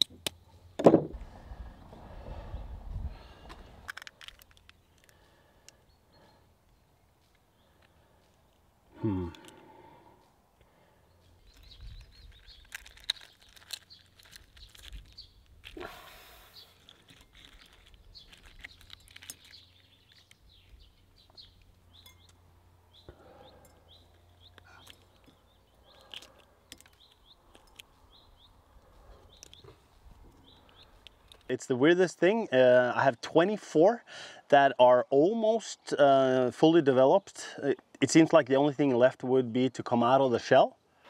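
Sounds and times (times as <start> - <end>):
small birds chirping: 0.0 - 38.8
eggshell crackling and crunching: 3.8 - 5.8, 7.6 - 10.0, 11.4 - 22.4, 24.1 - 31.5.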